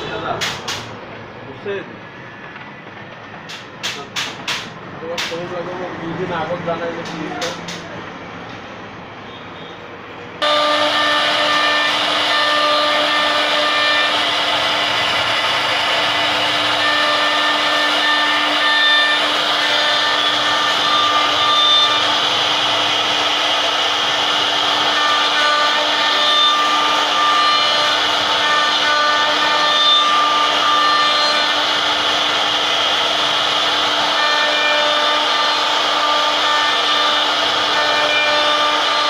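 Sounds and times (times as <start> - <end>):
router spindle whine: 10.4 - 39.0.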